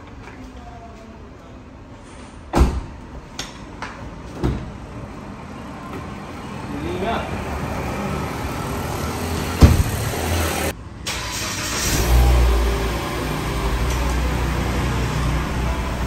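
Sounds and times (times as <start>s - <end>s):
car engine starting and idling: 7.9s - 16.0s
car door slamming: 9.6s - 10.2s.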